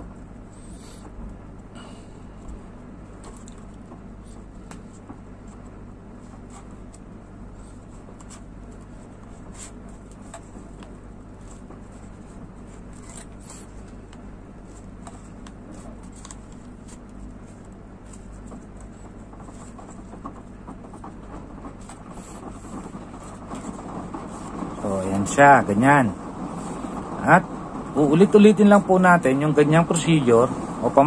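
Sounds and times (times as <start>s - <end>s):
steady low hum: 0.0s - 31.0s
cord rustling and rubbing: 3.1s - 24.8s.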